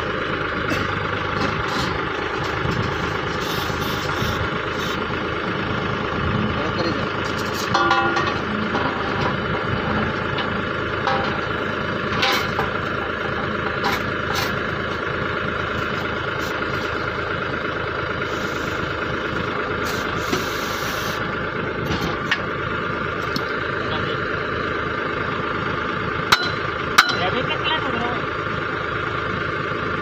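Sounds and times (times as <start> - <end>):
machine engine running: 0.0 - 30.0
sharp metal clanks: 7.4 - 12.8, 26.3 - 27.4.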